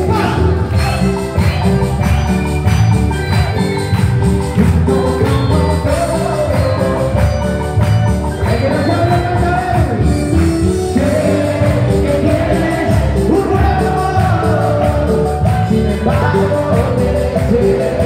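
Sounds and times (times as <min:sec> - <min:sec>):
bass: 0:00.0 - 0:18.0
electronic keyboard melody: 0:00.0 - 0:18.0
steady percussion: 0:00.0 - 0:18.0
person singing into microphone: 0:08.3 - 0:18.0.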